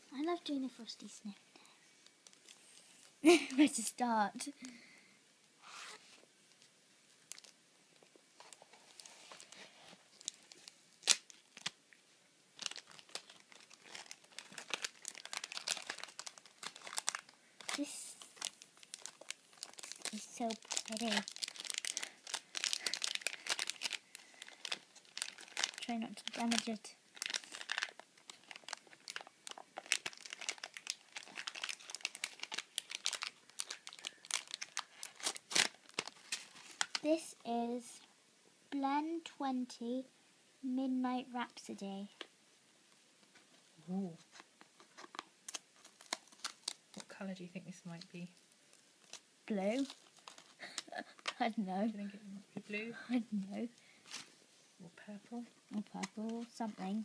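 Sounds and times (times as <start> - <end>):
paper wrapping crinkling and tearing: 7.2 - 7.6, 8.4 - 11.8, 12.6 - 37.2, 44.2 - 47.2, 49.0 - 51.4, 54.0 - 54.3, 55.7 - 57.0.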